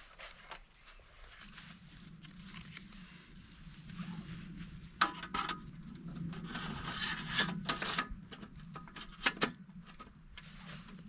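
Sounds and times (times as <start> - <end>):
rough scraping and rubbing: 6.3 - 8.2.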